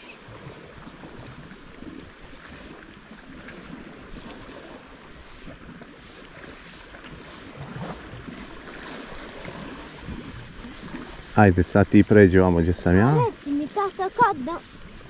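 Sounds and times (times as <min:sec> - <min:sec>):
sea water washing on shore: 0:00.0 - 0:15.0
wind rumbling on microphone: 0:00.0 - 0:15.0.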